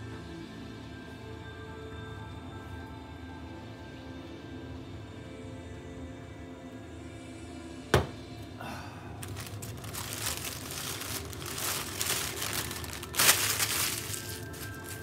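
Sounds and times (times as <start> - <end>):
plastic mailer bag crinkling: 9.2 - 15.0.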